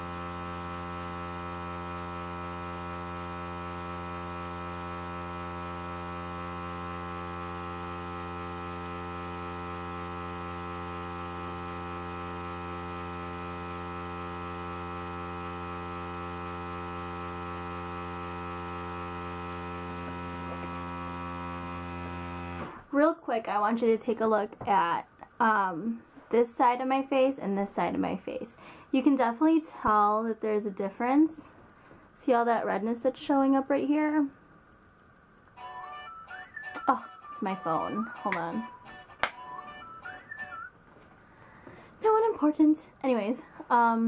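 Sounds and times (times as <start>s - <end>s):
air compressor humming: 0.0s - 22.9s.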